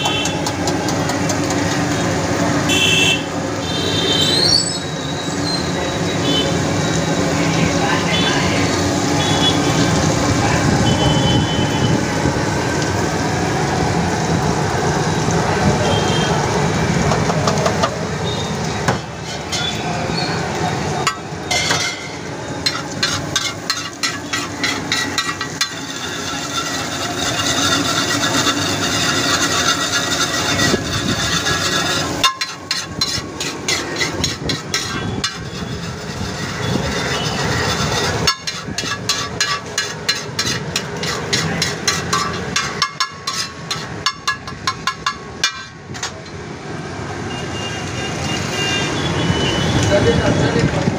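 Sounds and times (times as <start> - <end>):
food frying: 0.0 - 47.2
metal spatula scraping griddle: 19.1 - 20.0, 21.1 - 46.3.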